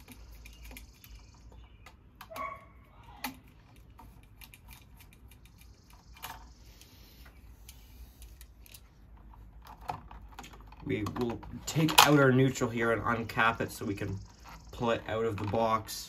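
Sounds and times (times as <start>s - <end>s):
screwdriver clicks and scrapes: 2.2s - 9.0s.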